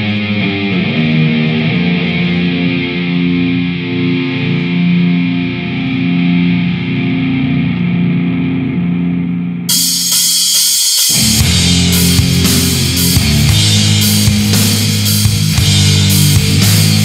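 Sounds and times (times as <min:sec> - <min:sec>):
distorted electric guitar chords: 0:00.0 - 0:17.0
cymbal crashes: 0:09.7 - 0:17.0
drums: 0:09.7 - 0:17.0.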